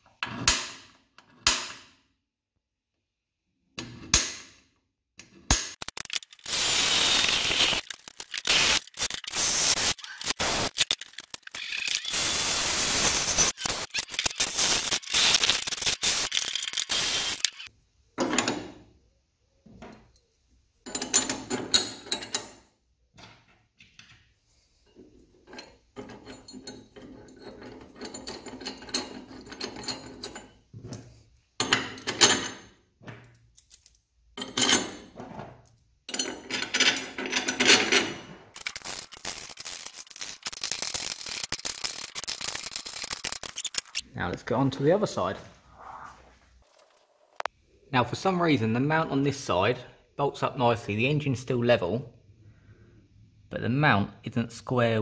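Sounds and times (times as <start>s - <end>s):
ratchet clicking: 5.7s - 17.7s, 38.6s - 44.0s
electric drill boring through steel: 6.4s - 7.9s, 11.5s - 17.7s
metal clinks and knocks: 25.0s - 44.0s.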